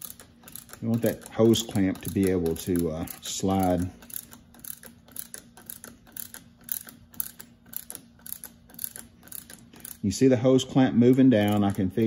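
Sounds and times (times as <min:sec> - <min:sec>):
ratchet wrench clicking: 0:00.0 - 0:12.0.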